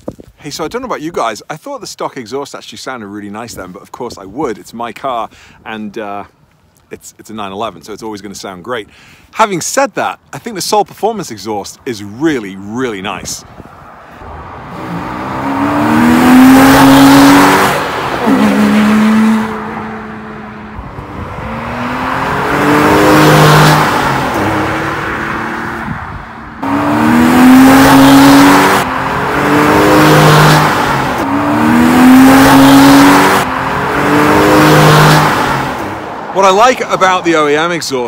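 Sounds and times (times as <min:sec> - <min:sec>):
sports cars accelerating past: 0:13.9 - 0:36.4.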